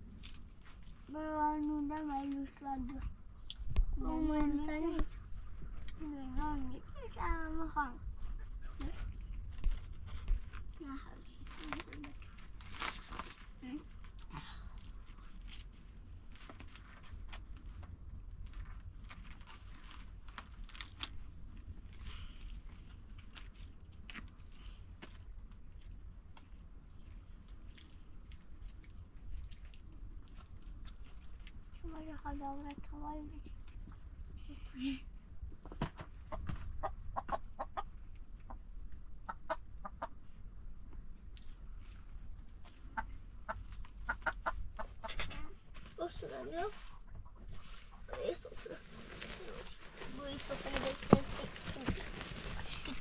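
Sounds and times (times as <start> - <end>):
steady low rumble: 0.0 - 53.0
flatbread crackling: 9.2 - 35.0, 47.6 - 53.0
hens clucking: 36.3 - 38.6, 42.9 - 45.3.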